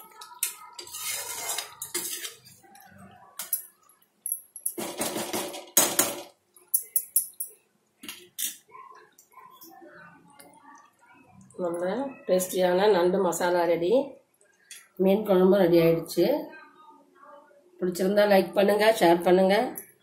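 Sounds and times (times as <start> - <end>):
metal ladle scraping an iron pan: 0.4 - 2.6.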